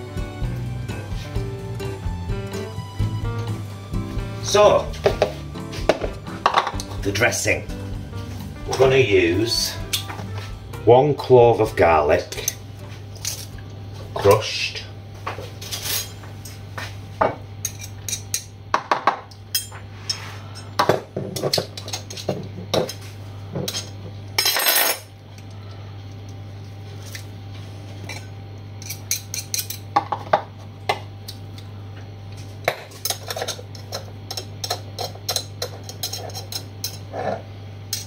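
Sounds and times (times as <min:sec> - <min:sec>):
knife scraping and tapping: 0:33.1 - 0:37.4.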